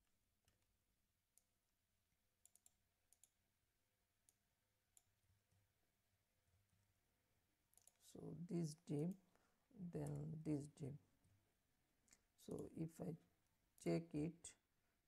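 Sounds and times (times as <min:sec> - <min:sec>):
computer keyboard and mouse clicks: 0:02.4 - 0:03.4.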